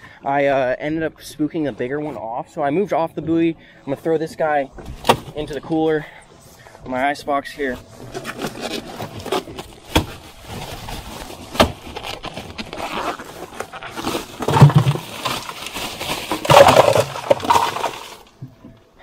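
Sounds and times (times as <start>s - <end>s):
knocks and scraping in fish box: 7.7s - 18.8s
plastic bag rustling: 7.8s - 18.4s
ice cubes pouring and clattering: 14.0s - 18.3s.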